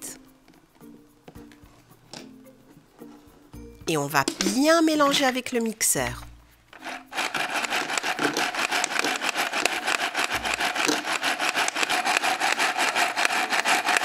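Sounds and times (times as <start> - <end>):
toy hand mixer whirring: 6.8 - 14.0.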